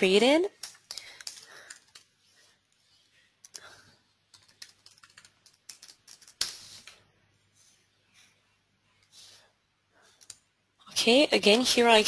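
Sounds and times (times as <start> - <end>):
keyboard typing: 4.3 - 6.4.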